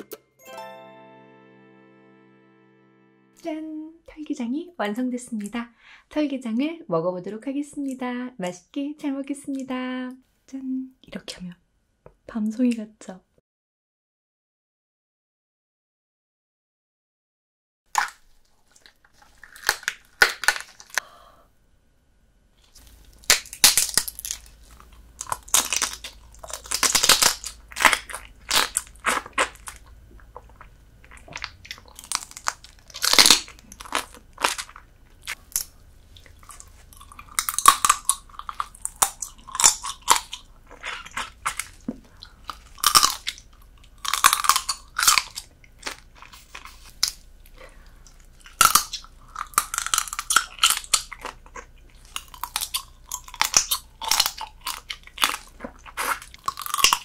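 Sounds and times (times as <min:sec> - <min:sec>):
crab shell crunching: 0:17.9 - 0:21.1, 0:22.6 - 0:57.0
chewing: 0:24.0 - 0:57.0.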